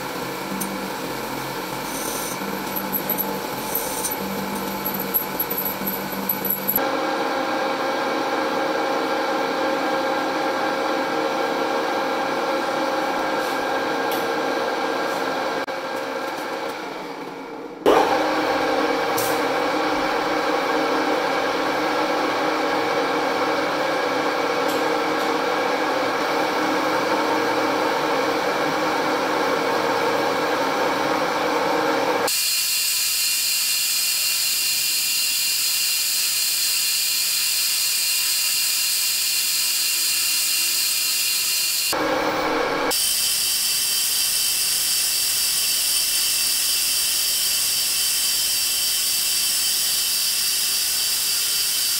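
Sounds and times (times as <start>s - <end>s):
lathe mechanical drone: 0.0s - 7.0s
boring bar cutting hiss: 1.7s - 2.4s, 32.3s - 42.0s, 42.9s - 51.9s.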